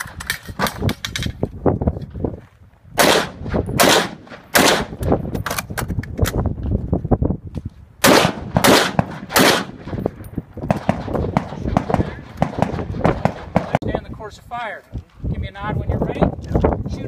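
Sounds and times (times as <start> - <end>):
handgun shots: 3.0 - 5.7, 8.0 - 10.0.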